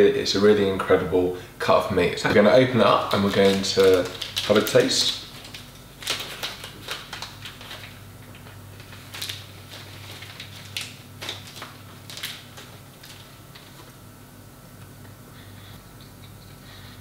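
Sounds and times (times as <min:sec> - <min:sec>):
plastic packet crinkling: 0:02.9 - 0:14.0.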